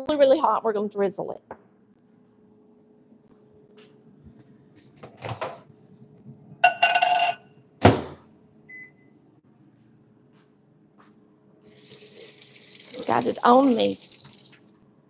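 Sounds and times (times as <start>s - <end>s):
microwave beeps: 6.6s - 7.5s, 8.7s - 9.2s.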